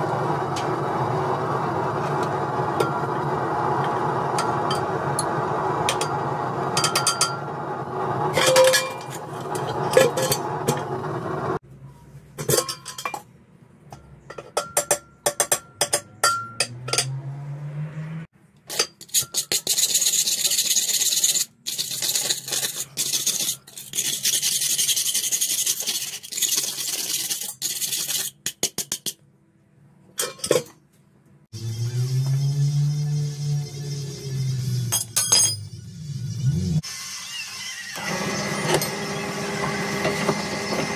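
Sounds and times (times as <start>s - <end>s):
scraping and clinking in metal pot: 5.9s - 7.5s, 8.3s - 11.1s, 12.4s - 13.3s, 13.9s - 17.2s, 18.7s - 29.2s, 30.2s - 30.8s.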